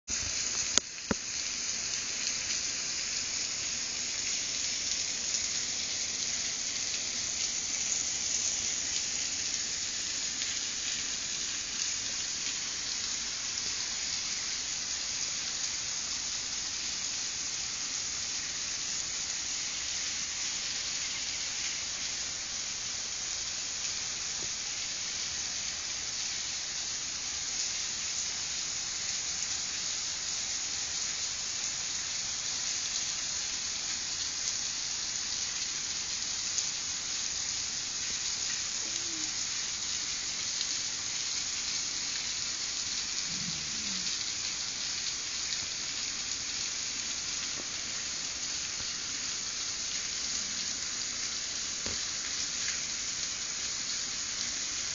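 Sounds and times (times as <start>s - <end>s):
rain-like hiss: 0.0s - 54.9s.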